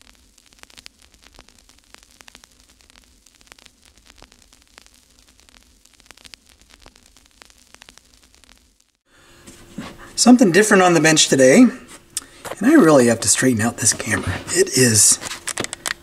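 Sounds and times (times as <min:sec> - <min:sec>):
static clicks and pops: 0:00.0 - 0:09.0, 0:15.3 - 0:16.0
steady hiss: 0:00.0 - 0:16.0.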